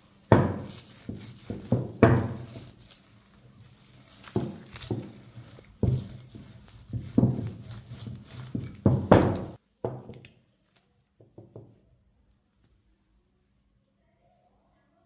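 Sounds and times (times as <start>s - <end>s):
rolling pin rolling dough: 0.0s - 10.3s.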